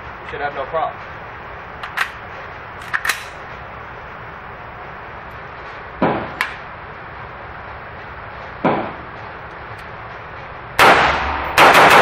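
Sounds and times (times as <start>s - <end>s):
metallic clacks of rifle charging: 2.8s - 3.4s
rifle shot: 10.8s - 12.0s.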